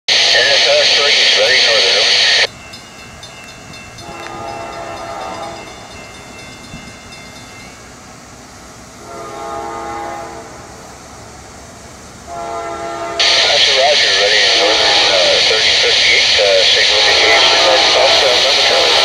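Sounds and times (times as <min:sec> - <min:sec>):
locomotive air horn blasts: 0:04.0 - 0:05.8, 0:09.0 - 0:10.8, 0:12.3 - 0:13.5, 0:14.5 - 0:15.3, 0:17.0 - 0:18.3.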